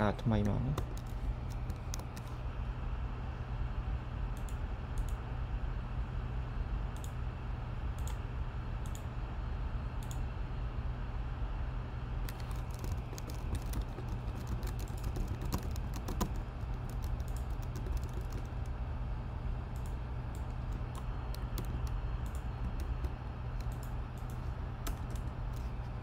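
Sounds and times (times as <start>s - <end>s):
steady low hum: 0.0s - 26.0s
computer keyboard key clicks: 0.4s - 2.3s, 12.3s - 18.7s, 19.8s - 25.3s.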